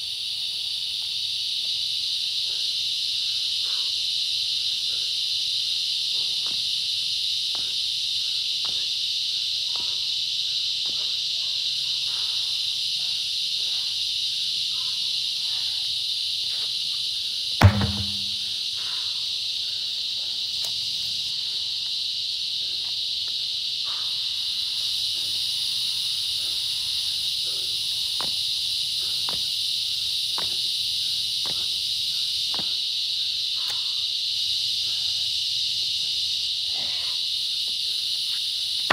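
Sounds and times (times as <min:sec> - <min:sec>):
insects buzzing: 0:00.0 - 0:38.9
heavy thud of tire landing: 0:17.6 - 0:18.5.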